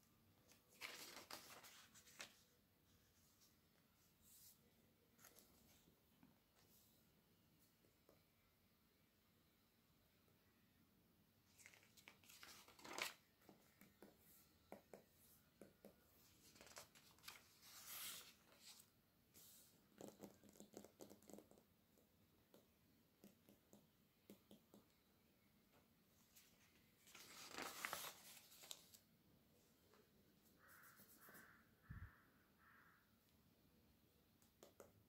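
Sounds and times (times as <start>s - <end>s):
catalogue pages turning: 0.5s - 2.5s, 11.5s - 14.4s, 16.2s - 21.1s, 26.4s - 29.0s
fingernails tapping glossy pages: 11.6s - 17.4s, 19.9s - 21.7s, 22.4s - 25.1s.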